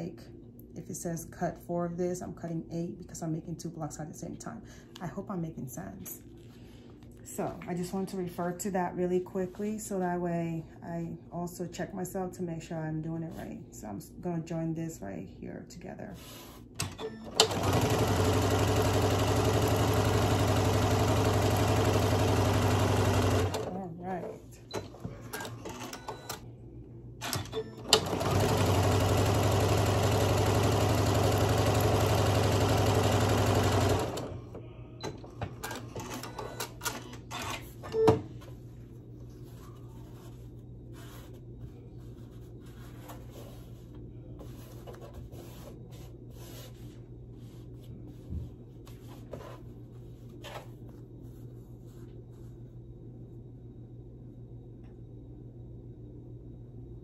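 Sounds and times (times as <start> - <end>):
low steady hum: 0.0 - 57.0
sewing machine stitching: 16.8 - 23.8, 27.2 - 34.4.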